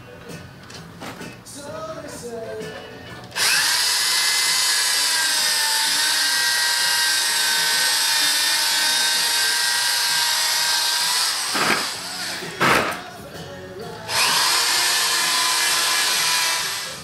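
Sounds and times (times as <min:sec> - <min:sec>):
electric drill whining: 0:03.4 - 0:12.6, 0:14.1 - 0:17.0.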